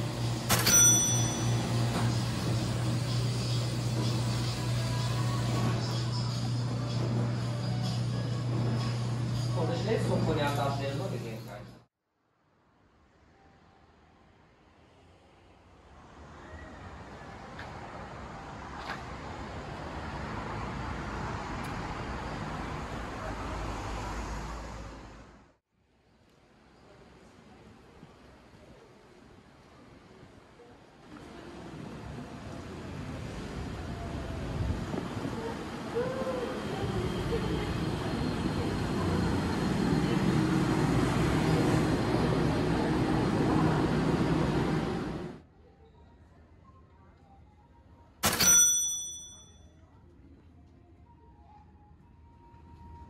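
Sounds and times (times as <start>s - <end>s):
monorail train rumble: 0.0s - 11.8s, 27.4s - 45.4s
city street traffic: 0.0s - 45.8s, 48.2s - 53.0s.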